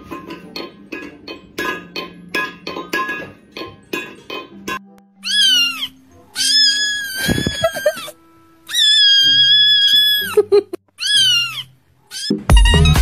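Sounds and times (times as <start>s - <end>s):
low background music: 0.0s - 10.2s
cat wails: 5.2s - 12.5s.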